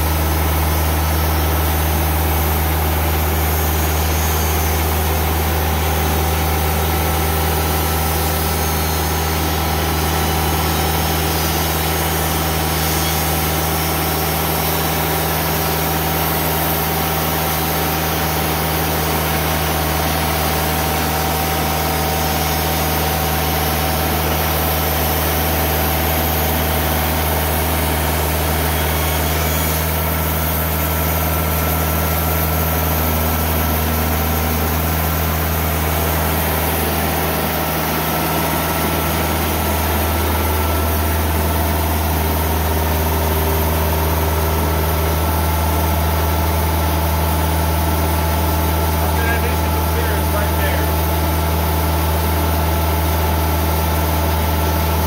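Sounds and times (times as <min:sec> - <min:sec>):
diesel sawmill engine running: 0:00.0 - 0:55.0.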